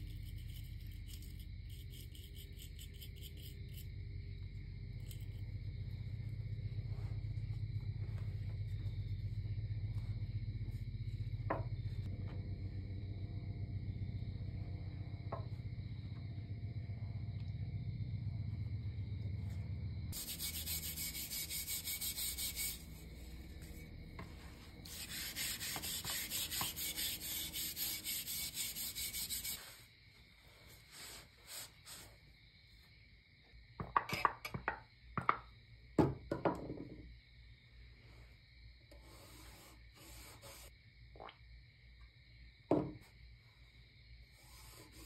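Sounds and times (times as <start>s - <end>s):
steel wool scrubbing metal blade: 20.1s - 23.9s, 24.6s - 29.8s
blade knocking on wooden bench: 33.8s - 37.0s, 42.7s - 43.0s.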